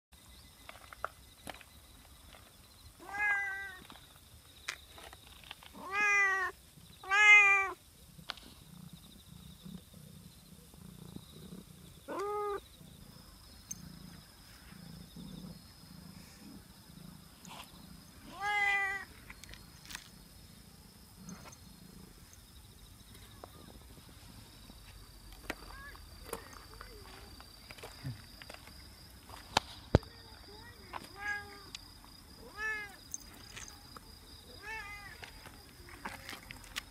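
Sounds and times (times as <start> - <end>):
cat meowing: 3.0 - 3.8, 5.8 - 7.8, 12.1 - 12.6, 18.3 - 19.1, 34.6 - 35.2
cat purring: 8.0 - 19.3, 19.9 - 22.9.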